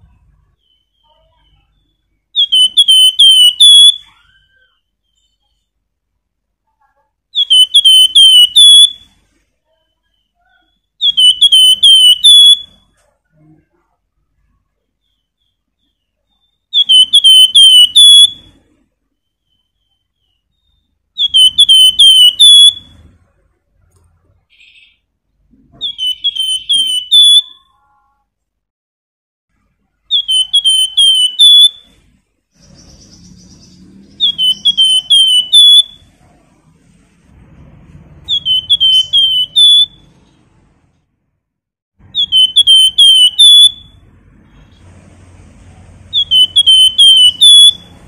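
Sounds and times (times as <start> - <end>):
songbird whistling phrases: 0.6 - 5.6, 7.4 - 9.1, 9.7 - 12.8, 15.0 - 18.5, 19.3 - 23.0, 25.8 - 27.7, 30.1 - 31.8, 32.6 - 36.0, 38.3 - 40.0, 42.1 - 44.0, 46.1 - 47.9.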